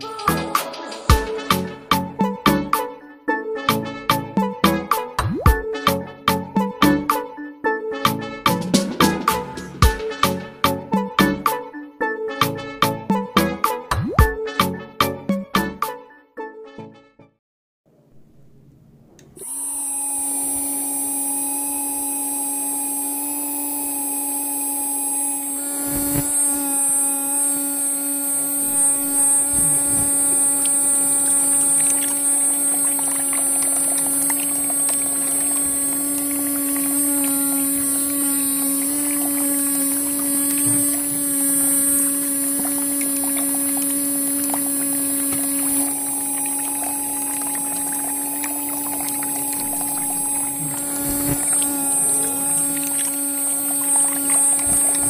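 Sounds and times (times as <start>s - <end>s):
water pump motor whining: 0.0s - 2.9s, 8.1s - 11.6s, 18.9s - 55.0s.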